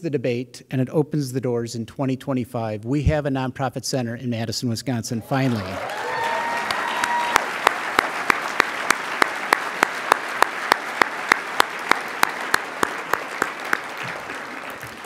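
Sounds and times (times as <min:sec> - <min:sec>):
audience applauding: 0:05.3 - 0:15.0
close hand claps: 0:05.5 - 0:15.0.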